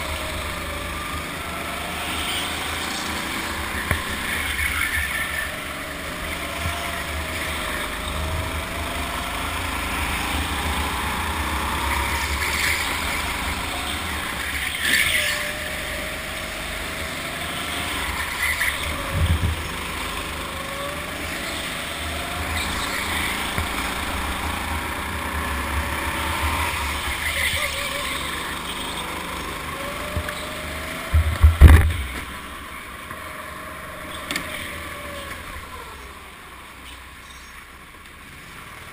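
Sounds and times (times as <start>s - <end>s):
go-kart engine rumble and whine: 0.0s - 38.9s
loud sharp knocks: 31.1s - 32.2s.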